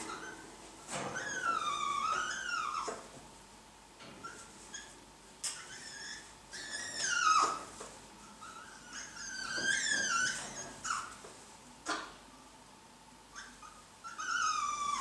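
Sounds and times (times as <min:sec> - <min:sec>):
macaws calling: 0:01.1 - 0:03.0, 0:04.2 - 0:07.7.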